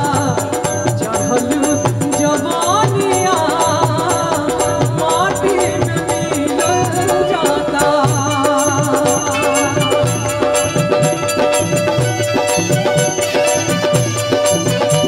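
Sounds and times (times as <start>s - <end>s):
woman singing into microphone: 0.0s - 11.5s
folk band playing: 0.0s - 15.0s
hand drum beat: 0.0s - 15.0s.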